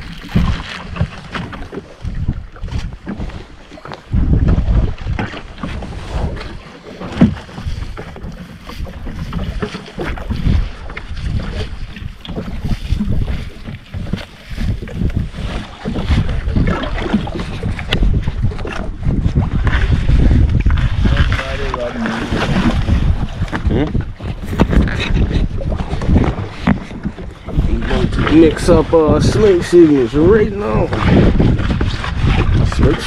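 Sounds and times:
water noise: 0:00.0 - 0:33.0
wind buffeting microphone: 0:00.0 - 0:33.0.

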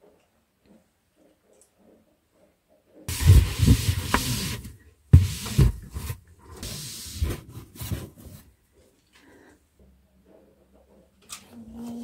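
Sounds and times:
fabric bins sliding on shelf: 0:03.1 - 0:08.4.

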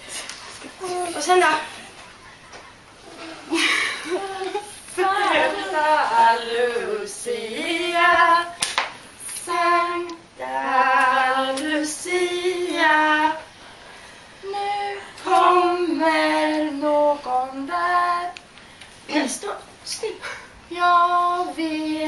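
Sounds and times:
woman and child singing: 0:04.1 - 0:08.6, 0:09.2 - 0:13.5, 0:14.4 - 0:18.4, 0:20.7 - 0:22.0.

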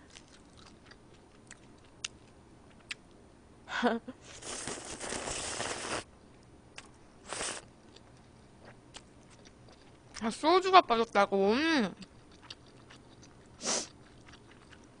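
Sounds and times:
slurping noodles and broth: 0:04.3 - 0:06.1, 0:07.2 - 0:07.6, 0:13.6 - 0:13.9.

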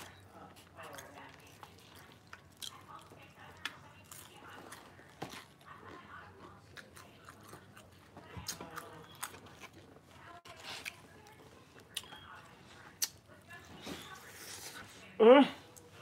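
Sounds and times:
person chewing crispy chicken: 0:00.0 - 0:12.2
wet mouth clicks: 0:13.0 - 0:13.2.

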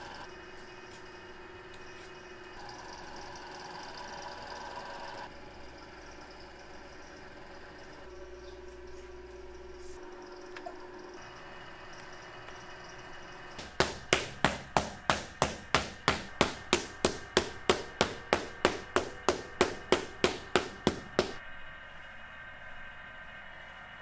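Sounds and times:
wooden paddle beating clay: 0:13.6 - 0:21.4.

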